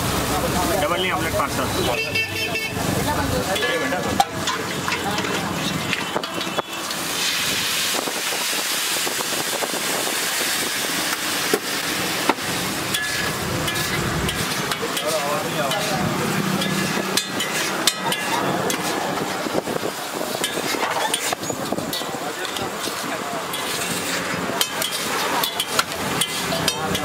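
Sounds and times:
egg sizzling on a griddle: 2.6s - 27.0s
spatula clinking on griddle: 3.4s - 7.0s, 12.8s - 27.0s
metal spatula scraping: 3.5s - 7.5s, 11.0s - 27.0s.

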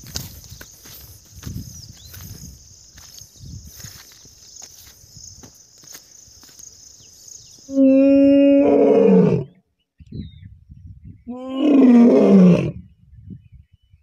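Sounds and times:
lion roaring: 7.7s - 9.6s, 11.4s - 12.8s.

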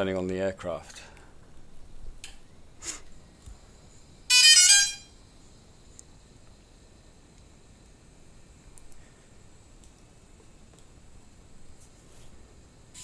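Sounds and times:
faint high whine: 0.0s - 13.0s.

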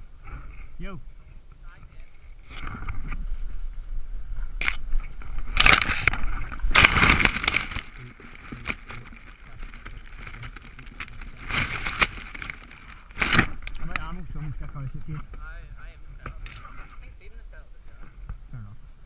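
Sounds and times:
dry grass rustling and scraping: 0.2s - 18.4s
sharp clicks: 5.4s - 8.0s.

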